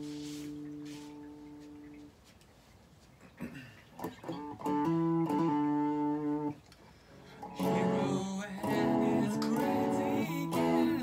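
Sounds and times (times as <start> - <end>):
electric guitar chords: 0.0 - 2.1, 3.9 - 11.0
guitar sliding note: 0.0 - 2.1.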